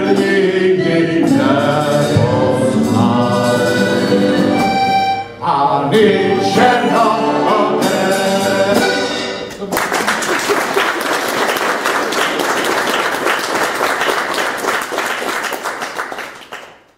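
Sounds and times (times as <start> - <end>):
song with accompaniment: 0.0 - 9.7
audience applause: 9.6 - 16.9.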